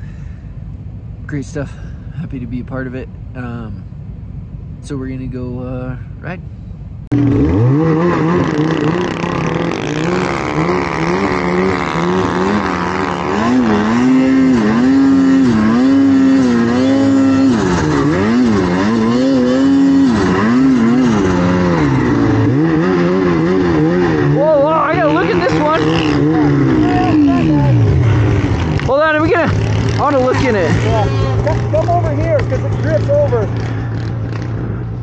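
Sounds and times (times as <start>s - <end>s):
snowmobile engine revving: 7.1s - 35.0s.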